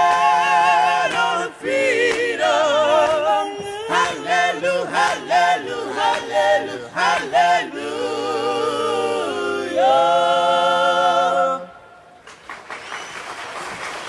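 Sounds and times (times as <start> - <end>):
vocal quartet singing chords: 0.0 - 12.2
audience applause: 12.2 - 14.0.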